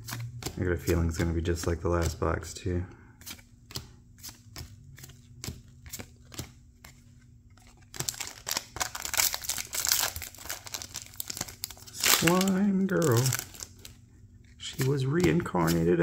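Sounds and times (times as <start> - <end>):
trading cards snapping: 3.2 - 13.9, 14.6 - 16.0
foil pack crinkling and tearing: 8.0 - 13.9.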